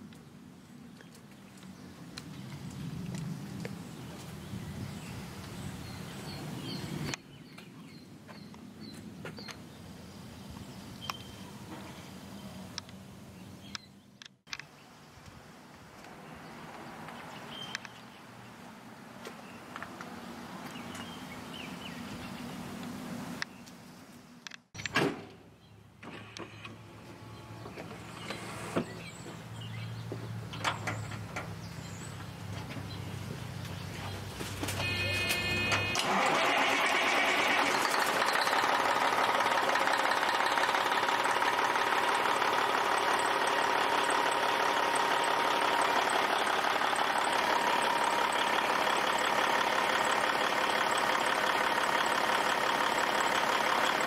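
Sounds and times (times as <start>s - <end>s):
diesel truck engine idling: 34.2s - 54.0s.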